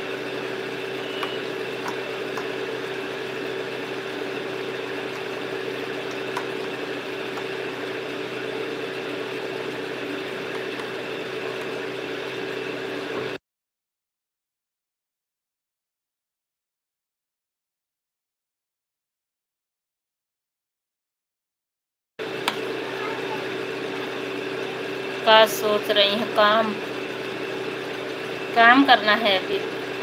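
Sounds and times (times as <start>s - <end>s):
steady mechanical whirring hum: 0.0s - 13.4s, 22.2s - 30.0s.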